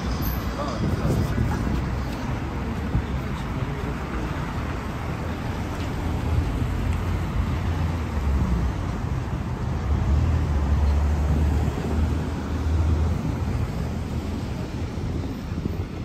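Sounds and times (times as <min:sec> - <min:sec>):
low traffic rumble: 0:00.0 - 0:16.0
cars driving past on wet road: 0:03.8 - 0:15.1.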